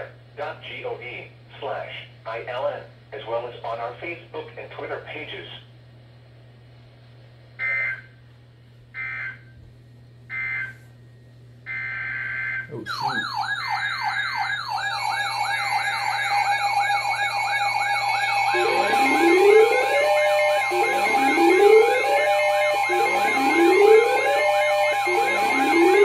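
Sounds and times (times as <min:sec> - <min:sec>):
warbling electronic alert siren: 0:07.6 - 0:08.1, 0:09.0 - 0:09.5, 0:10.3 - 0:10.8, 0:11.7 - 0:26.0
steady alert tones: 0:11.7 - 0:26.0.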